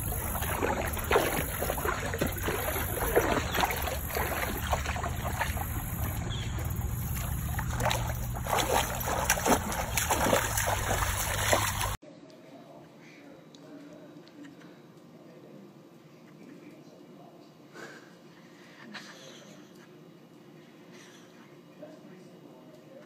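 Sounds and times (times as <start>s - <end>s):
dog splashing through water: 0.0s - 12.0s
steady low rumble: 0.0s - 12.0s.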